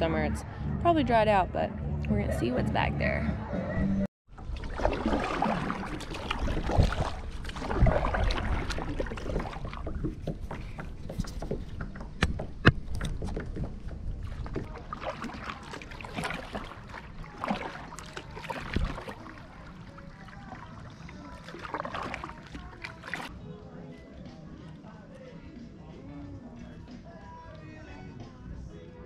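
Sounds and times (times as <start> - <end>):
paddle splashing in water: 4.3 - 23.3
water lapping at hull: 4.3 - 23.3.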